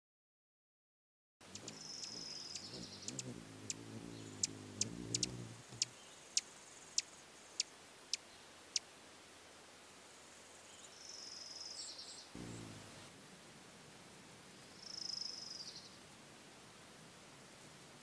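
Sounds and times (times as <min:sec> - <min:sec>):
hummingbird wings humming: 0:01.4 - 0:07.2, 0:12.4 - 0:13.2
sharp ticks: 0:01.5 - 0:05.9.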